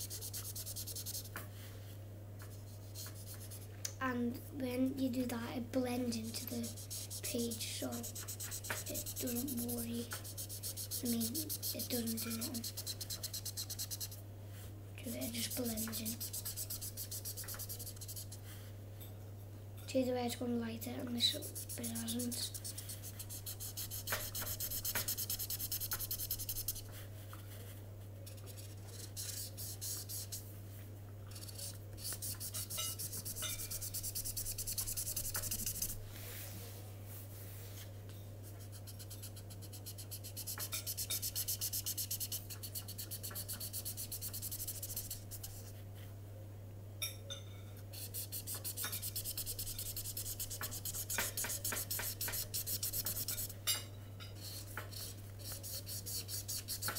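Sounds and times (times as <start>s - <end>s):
marker pen rubbing on paper: 0.0s - 1.4s, 2.5s - 3.7s, 6.1s - 14.2s, 15.1s - 18.4s, 21.2s - 27.0s, 28.2s - 30.4s, 31.3s - 36.0s, 38.5s - 45.8s, 47.9s - 53.6s, 54.4s - 56.9s.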